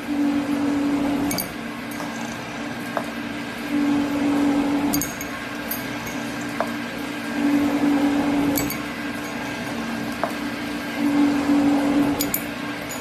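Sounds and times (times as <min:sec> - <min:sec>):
sheet-metal folding machine motor hum: 0:00.0 - 0:13.0.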